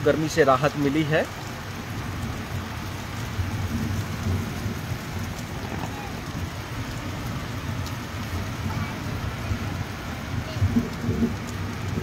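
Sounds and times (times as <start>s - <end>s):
heavy rain on rooftops: 0.0s - 12.0s.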